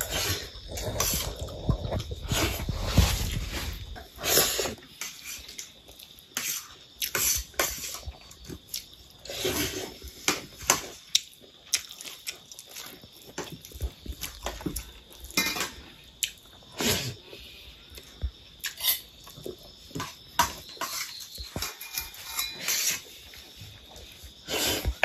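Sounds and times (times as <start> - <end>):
chewing sounds: 11.0 - 15.4.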